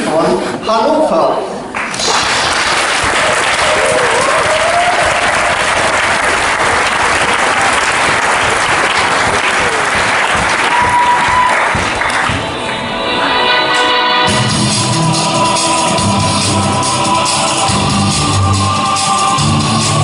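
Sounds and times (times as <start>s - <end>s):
audience applauding: 1.7s - 12.8s.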